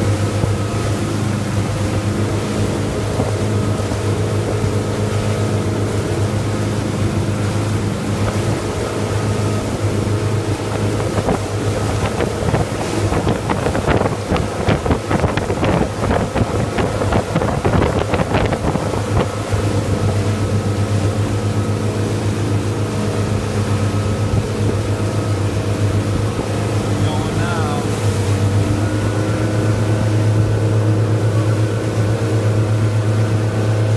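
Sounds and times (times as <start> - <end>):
boat knocks and splashes: 0.0 - 33.9
motorboat engine humming: 0.0 - 33.9
wind on microphone: 6.6 - 33.7.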